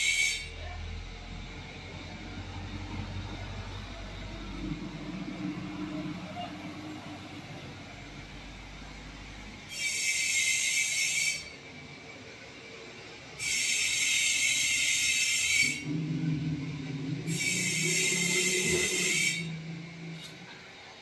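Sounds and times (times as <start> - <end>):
low hum: 0.8 - 9.6, 15.7 - 21.0
loud hissing bursts: 16.8 - 20.7.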